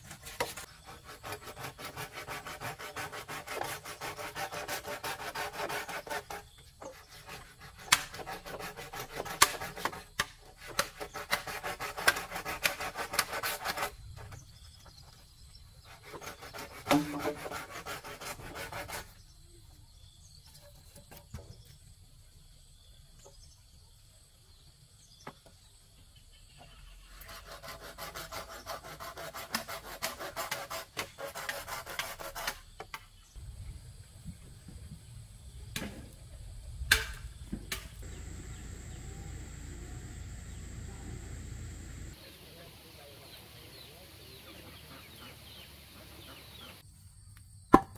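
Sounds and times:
hand sawing wood: 0.0 - 14.3, 15.8 - 19.2, 27.1 - 32.7.

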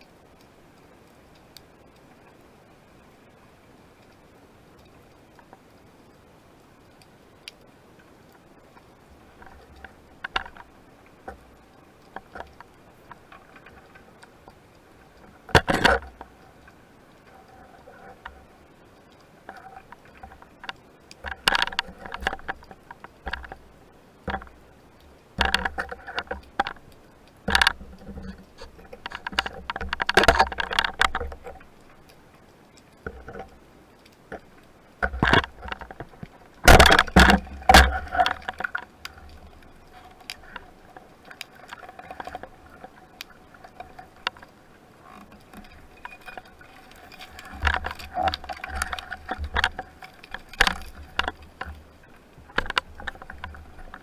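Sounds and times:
underwater knocks and scrapes on rock: 15.4 - 16.4, 27.5 - 31.6, 35.0 - 51.8, 52.4 - 54.0.

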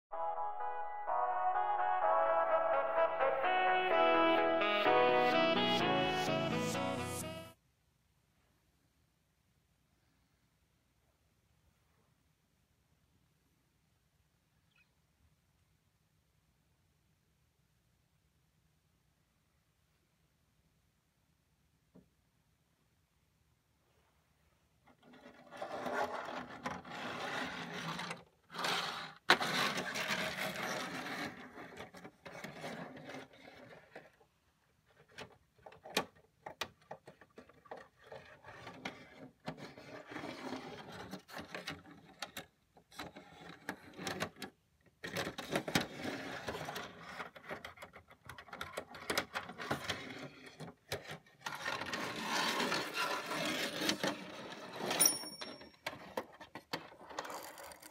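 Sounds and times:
toy cars clicking and knocking: 24.9 - 34.2, 34.9 - 57.9
toy cars rolling on plastic: 24.9 - 55.0, 55.8 - 57.9.

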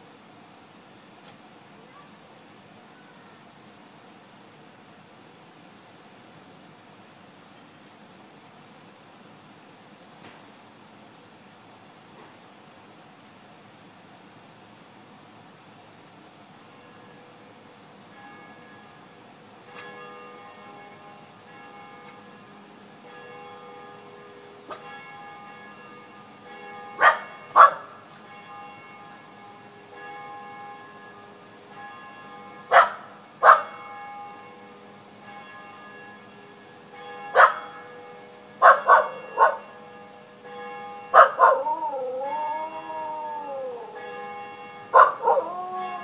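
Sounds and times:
distant church bells ringing: 16.6 - 46.0
dog barking: 27.0 - 27.9, 32.7 - 33.7, 37.4 - 37.6, 38.6 - 39.6, 41.1 - 41.8, 44.9 - 46.0
dog howling: 41.2 - 44.0, 44.9 - 46.0.

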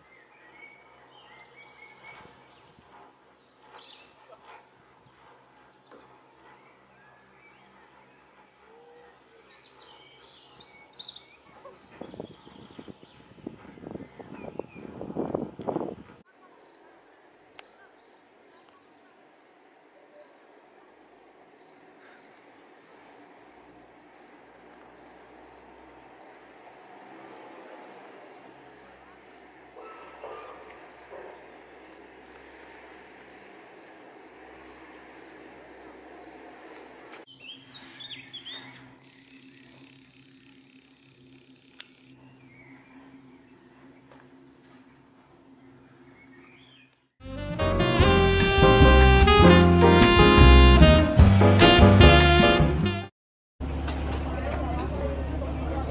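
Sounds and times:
faint outdoor hiss: 0.0 - 47.1
insect chirping: 16.5 - 37.2.

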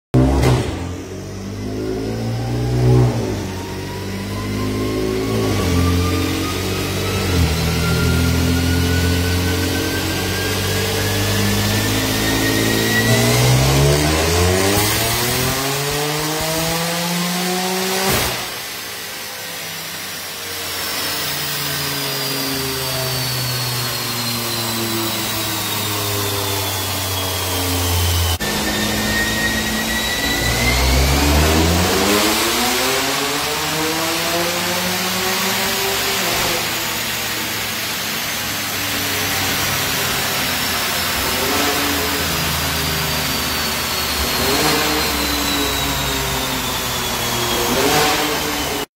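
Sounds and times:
car engine revving: 0.1 - 48.9
thin high whine: 20.7 - 32.9.

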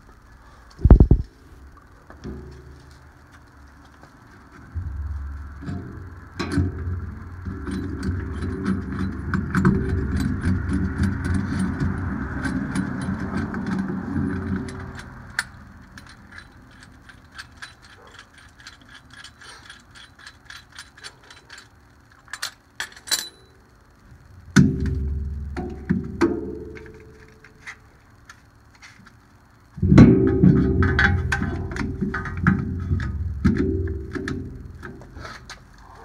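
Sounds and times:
low machine rumble: 0.0 - 36.0
ratcheting tool clicking: 7.6 - 23.3.

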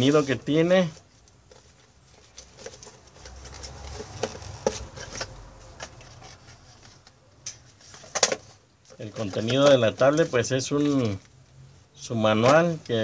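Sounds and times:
cardboard scraping and rustling: 0.0 - 11.2.

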